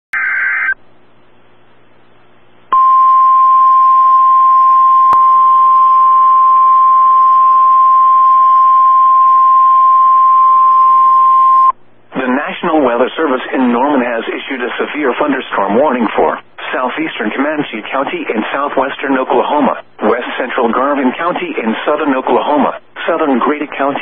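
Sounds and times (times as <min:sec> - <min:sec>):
steady alarm tone: 0:02.7 - 0:11.7.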